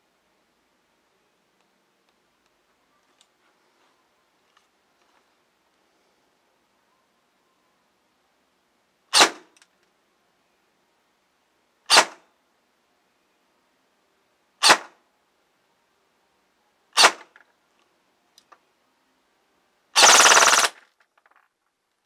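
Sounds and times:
airsoft rifle shots: 9.1s - 9.6s, 11.9s - 12.2s, 14.6s - 15.0s, 17.0s - 17.4s, 20.0s - 20.8s
airsoft rifle full-auto burst: 20.0s - 20.8s.

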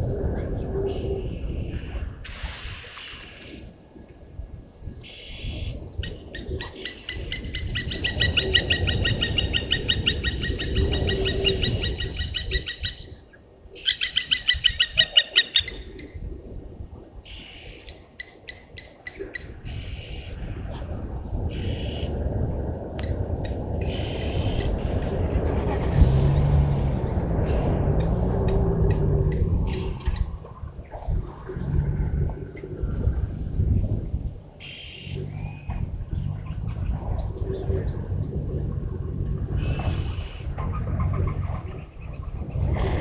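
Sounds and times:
low rumble: 0.0s - 2.3s, 19.8s - 43.0s.

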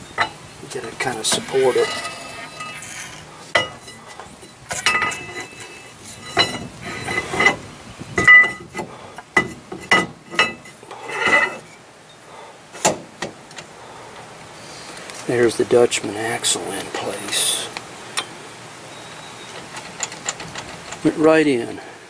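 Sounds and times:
metallic rattle: 0.0s - 11.7s, 19.6s - 21.1s
metal axle shaft clinking: 0.0s - 11.8s.

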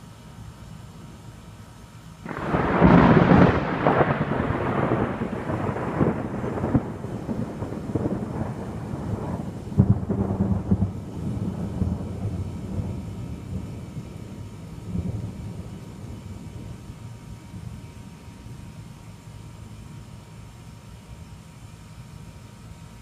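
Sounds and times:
thunder clap and rumble: 2.3s - 18.8s.

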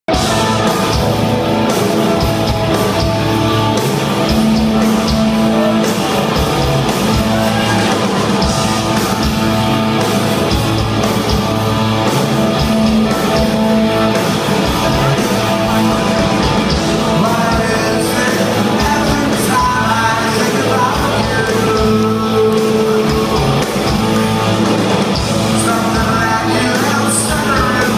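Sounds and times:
bass guitar: 0.0s - 27.9s
drums: 0.0s - 27.9s
electric guitars: 0.1s - 27.9s
lead singer singing: 14.9s - 24.5s, 25.4s - 27.9s.

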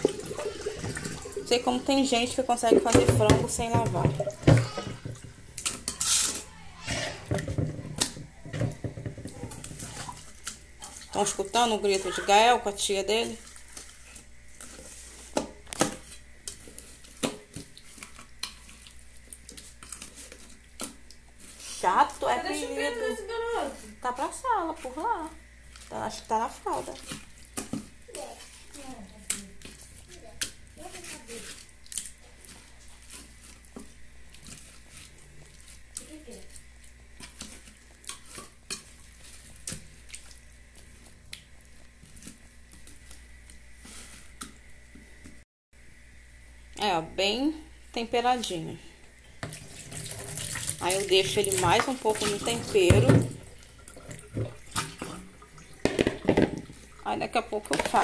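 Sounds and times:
hand mixing chicken in metal bowl: 0.0s - 44.6s, 49.4s - 58.0s
faint kitchen background noise: 0.0s - 58.0s
bowls knocking at metal sink: 2.6s - 5.5s, 55.8s - 56.8s.

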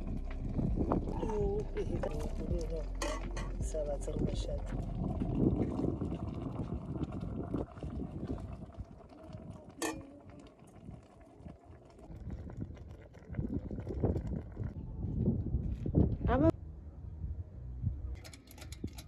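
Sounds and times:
mug knocking and scraping pot: 1.0s - 4.2s.

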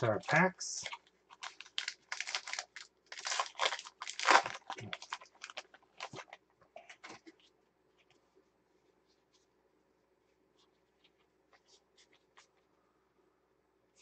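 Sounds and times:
foil wrapper tearing and crinkling: 0.8s - 6.4s.

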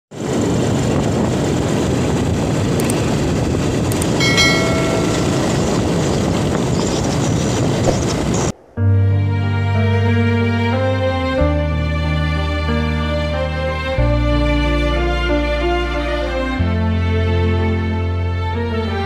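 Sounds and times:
wind and road noise on motorcycle: 0.1s - 8.6s
short electronic chime: 4.2s - 6.0s.

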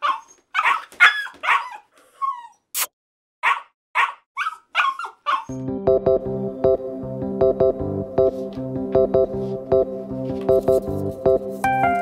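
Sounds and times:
dog barking: 0.0s - 1.8s, 3.4s - 5.6s
dog whining: 0.0s - 2.7s, 4.0s - 5.6s
keyboard music: 5.5s - 12.0s.

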